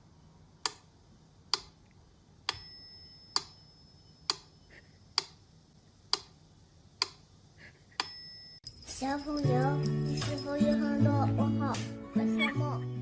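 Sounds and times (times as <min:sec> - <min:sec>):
bell-like metronome tick: 0:02.5 - 0:04.5.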